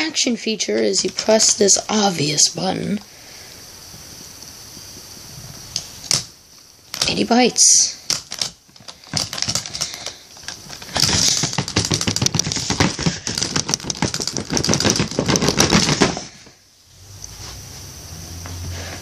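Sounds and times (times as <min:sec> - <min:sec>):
plastic toy clicks and clacks: 0:08.1 - 0:16.2.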